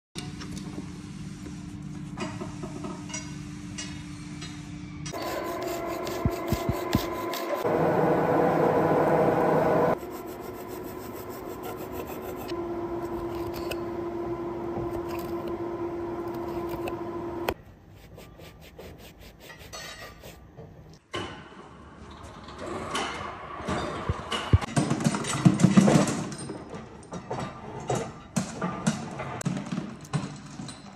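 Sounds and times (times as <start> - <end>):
steady machine hum: 5.2 - 17.6
metal scraping on steel: 18.1 - 20.5.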